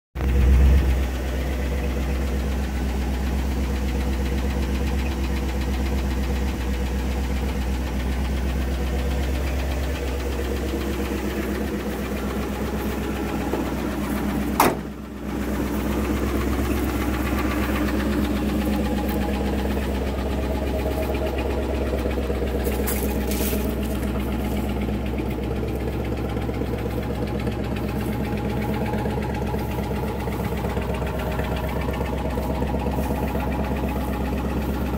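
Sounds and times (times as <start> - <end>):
truck engine idling: 0.2 - 34.9
sharp engine knock: 12.4 - 15.0.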